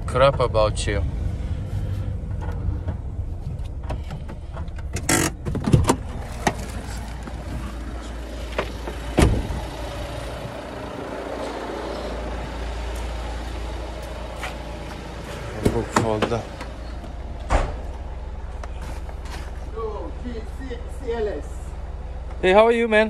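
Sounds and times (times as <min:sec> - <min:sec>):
steady low rumble: 0:00.0 - 0:23.0
van door clicking and knocking: 0:03.7 - 0:06.6, 0:08.5 - 0:09.7.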